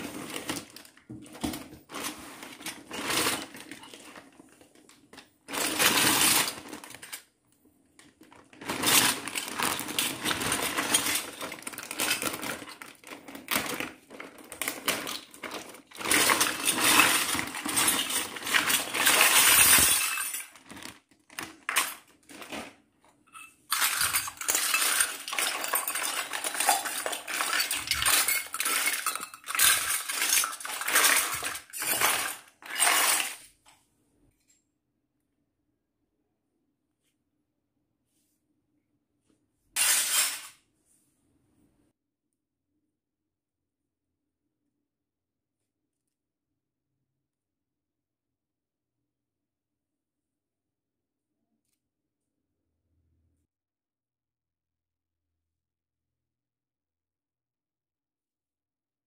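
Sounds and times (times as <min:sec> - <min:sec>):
plastic bag crinkling: 0:05.5 - 0:07.2, 0:08.0 - 0:22.7, 0:23.7 - 0:33.4
small metal toys clinking: 0:13.6 - 0:20.9, 0:23.3 - 0:33.5.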